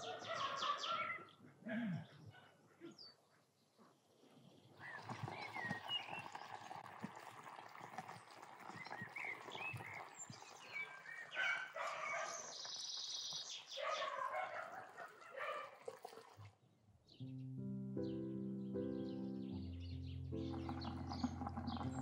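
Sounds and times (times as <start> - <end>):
birds chirping and calling: 0.0 - 1.4, 8.7 - 15.5, 19.1 - 22.0.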